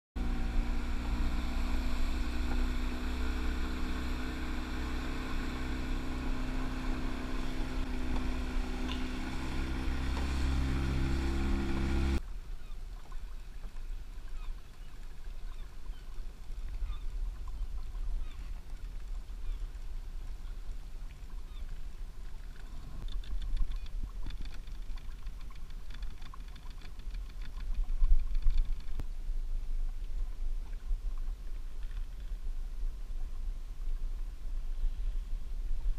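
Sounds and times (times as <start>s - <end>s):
boat motor running: 0.2s - 12.2s
low rumble: 0.2s - 12.2s
water lapping against boat: 0.2s - 29.0s
water rushing past hull: 0.2s - 35.9s.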